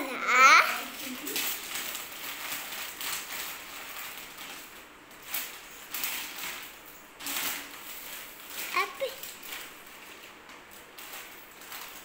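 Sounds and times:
plastic packing crinkling: 0.1s - 12.0s.

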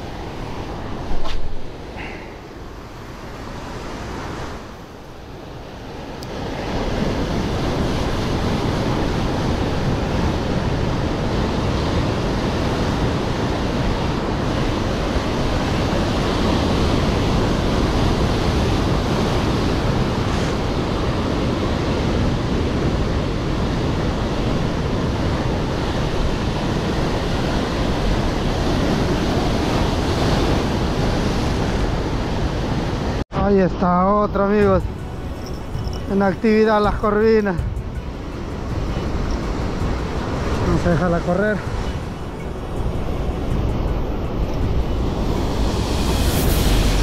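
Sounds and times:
sea surf: 0.0s - 47.0s
wind on microphone: 37.6s - 47.0s.

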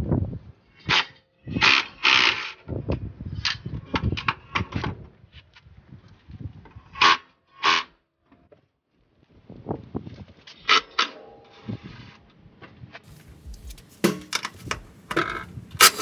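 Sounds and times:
scrapes rustles and knocks of hand work: 11.6s - 16.0s.

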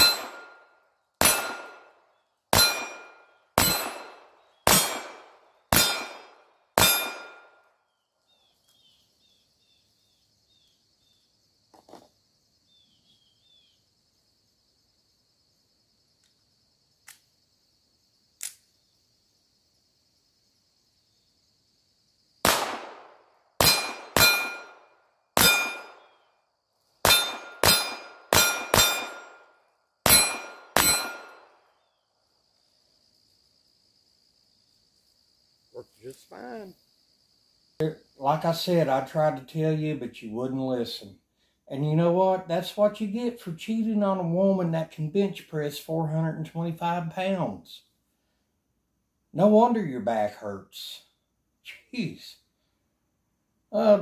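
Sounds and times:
pistol shots: 0.0s - 0.6s, 1.2s - 1.9s, 2.5s - 7.6s, 22.4s - 24.8s, 25.4s - 26.2s, 27.0s - 29.4s, 30.0s - 31.5s
gun handling clicks: 18.4s - 18.6s.

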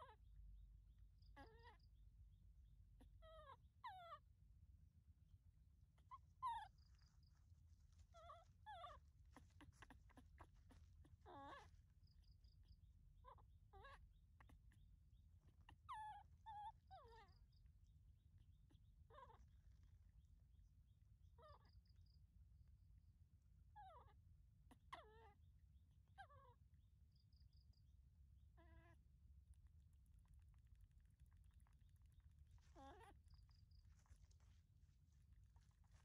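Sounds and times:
baby monkey crying: 1.4s - 1.8s, 8.0s - 11.8s, 32.6s - 33.4s.

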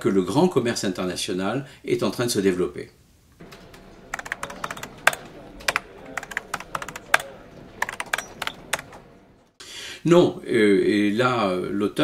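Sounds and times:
keyboard key clicks: 3.4s - 9.1s.

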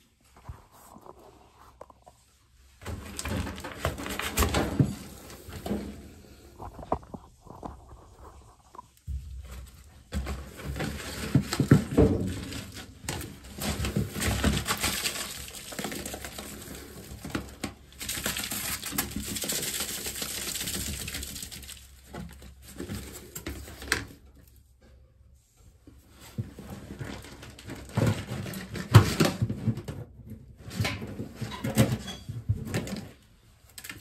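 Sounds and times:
foil duct crinkling and rustling: 2.8s - 5.8s, 6.8s - 24.6s.

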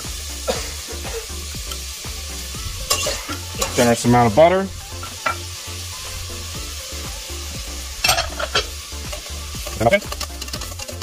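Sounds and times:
food sizzling in hot oil: 0.0s - 11.0s
metal tongs scraping pot: 2.8s - 4.3s, 8.0s - 11.0s.

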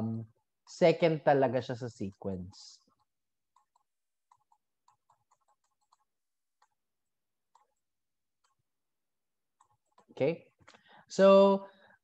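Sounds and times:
digital pen tapping on tablet: 3.0s - 8.7s, 9.5s - 10.2s.

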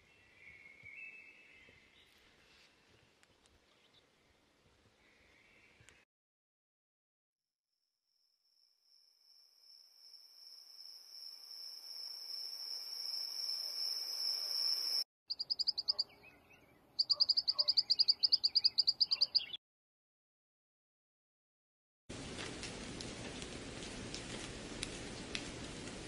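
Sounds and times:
rapid high chirps: 11.0s - 16.0s, 17.0s - 19.4s.

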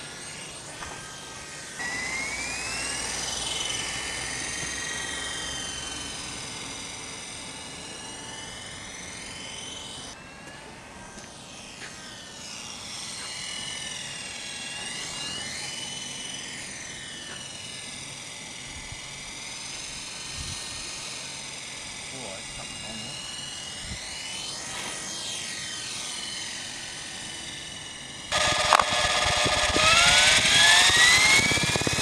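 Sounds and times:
rc helicopter rotor whine: 0.0s - 32.0s.

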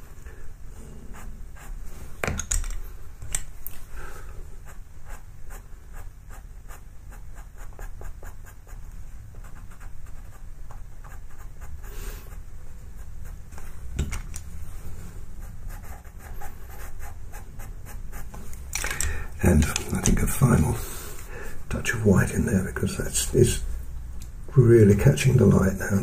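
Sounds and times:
low steady background hum: 0.0s - 26.0s
pastel pencil scratching on paper: 1.0s - 1.8s, 4.6s - 13.6s, 15.4s - 18.4s.

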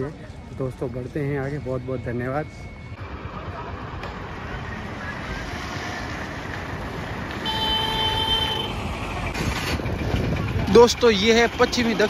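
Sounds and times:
vehicle horn: 7.3s - 8.8s.

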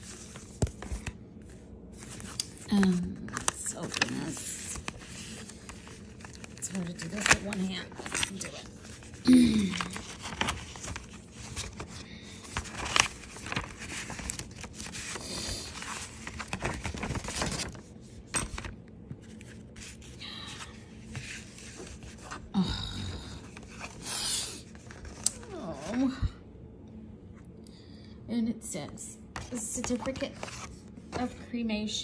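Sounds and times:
paper envelope rustling: 0.0s - 22.5s, 23.4s - 26.0s, 29.4s - 31.4s
small clicks and crinkles: 2.0s - 19.6s.

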